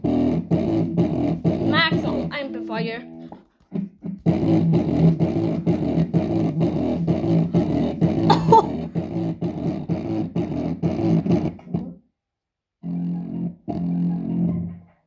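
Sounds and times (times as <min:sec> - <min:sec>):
distorted speaker playing bass beat: 0:00.0 - 0:03.0, 0:03.7 - 0:11.9.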